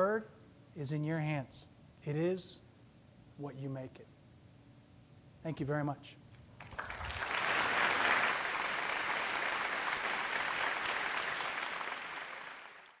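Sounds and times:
large audience applauding: 6.6 - 13.0.

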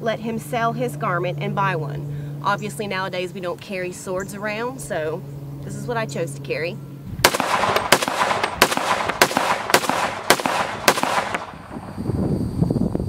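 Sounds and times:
gunshots: 7.2 - 11.8.

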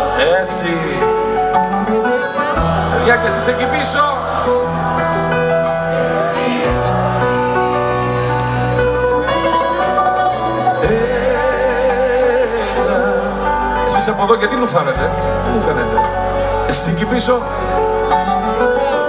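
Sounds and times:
guitar: 0.0 - 19.0
live pop band music: 0.0 - 19.0
sustained bass notes: 0.0 - 19.0.

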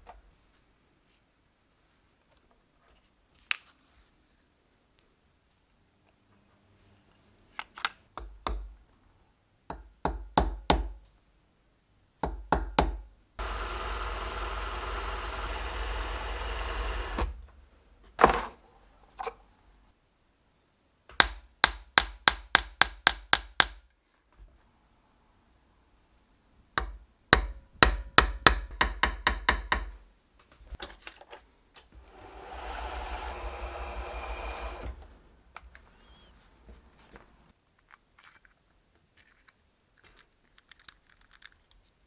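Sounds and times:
mini lathe running: 13.4 - 17.3, 32.0 - 35.0.

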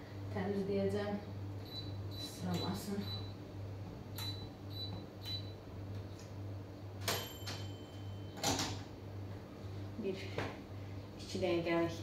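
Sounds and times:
hob touch control beeps: 1.7 - 3.3, 4.2 - 5.5.

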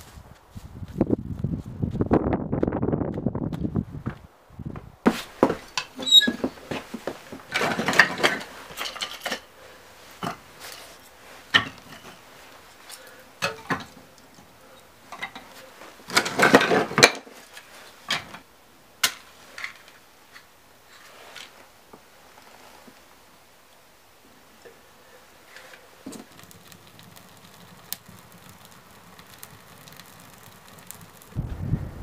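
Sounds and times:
objects clinking and scraping: 7.5 - 9.5.

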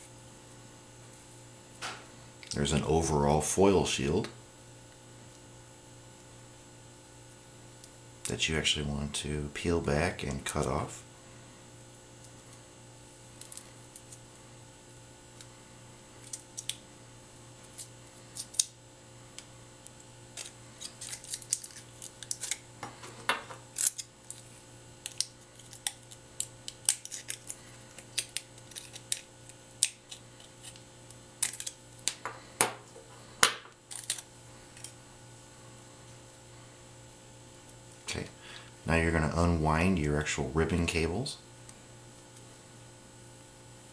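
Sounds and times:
faint steady hum: 0.0 - 43.9
foil crinkling and snipping: 20.3 - 22.7, 23.7 - 32.2, 33.9 - 34.3.

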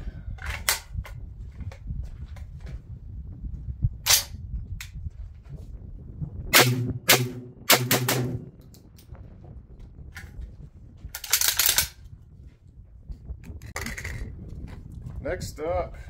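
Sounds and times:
shotgun shots: 6.6 - 8.6.

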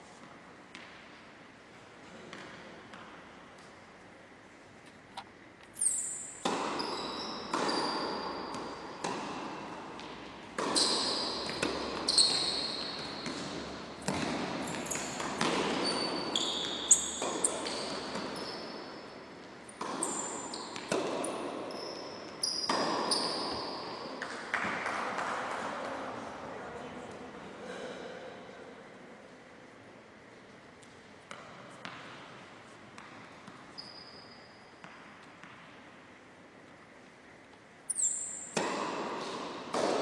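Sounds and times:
shoes squeaking on floor: 5.6 - 9.0, 10.5 - 24.2, 33.5 - 34.9, 37.9 - 38.6
tennis ball hit and bouncing: 6.3 - 25.7, 34.8 - 35.8, 38.0 - 40.0.

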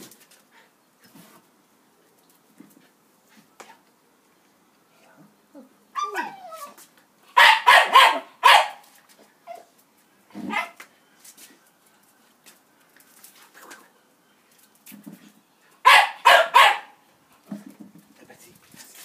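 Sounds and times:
dog whining: 5.6 - 6.8
dog barking: 7.4 - 8.8, 15.8 - 17.0.

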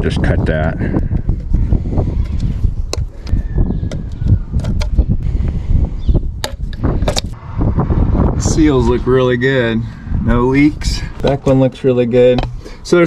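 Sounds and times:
uneven low rumble: 6.7 - 11.3.

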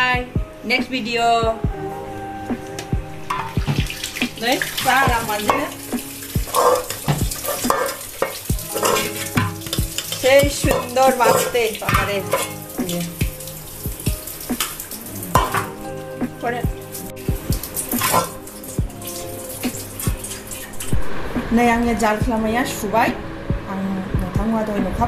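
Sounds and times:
song with wavering sung voice: 0.0 - 25.0
wet squelching of fruit squeezed: 16.7 - 21.0.

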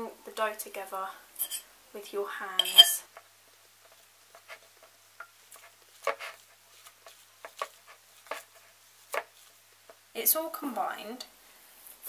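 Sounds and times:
pastry dough squishing: 3.2 - 10.1.

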